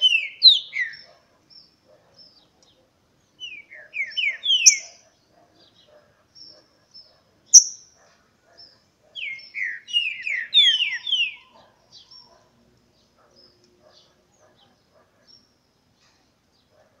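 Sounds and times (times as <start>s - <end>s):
bird whistling song: 0.0s - 1.1s, 3.4s - 5.0s, 7.5s - 7.9s, 9.2s - 12.2s
faint high chirps: 6.4s - 8.0s.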